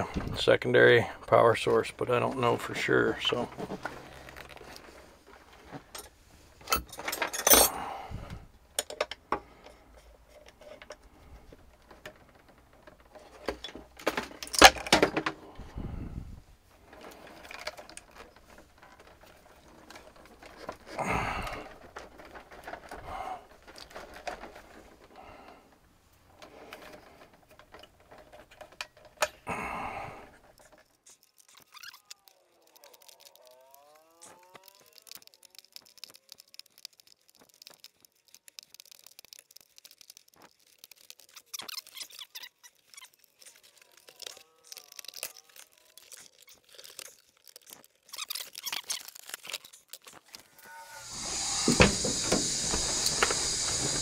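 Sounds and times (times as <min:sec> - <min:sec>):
wiring clinks rattles and rustles: 0:00.0 - 0:29.6, 0:30.2 - 0:54.0.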